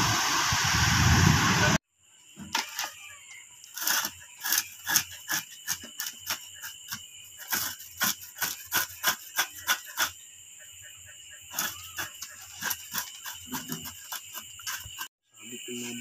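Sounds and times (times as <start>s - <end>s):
night insects droning: 1.9s - 16.0s.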